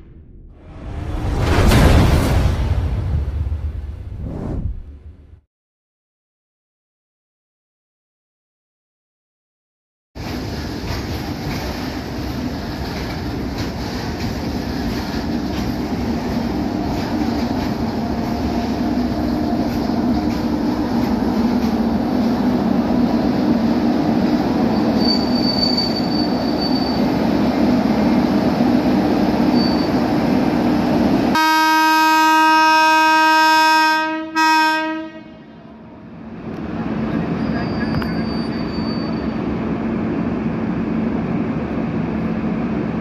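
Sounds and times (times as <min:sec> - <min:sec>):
train rumbling: 0:10.2 - 0:33.4, 0:34.5 - 0:43.0
locomotive horn blast: 0:31.3 - 0:35.9.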